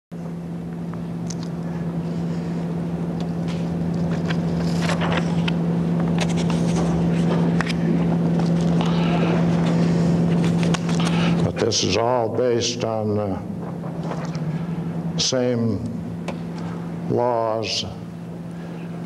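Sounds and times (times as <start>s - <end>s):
steady electrical hum: 0.1s - 19.0s
transparencies rustling and clicking: 3.2s - 11.2s, 13.4s - 14.8s.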